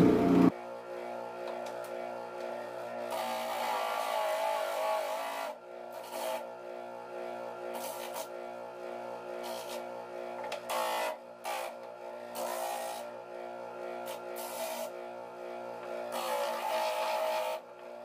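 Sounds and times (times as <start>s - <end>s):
disc sander motor humming: 0.0s - 3.8s.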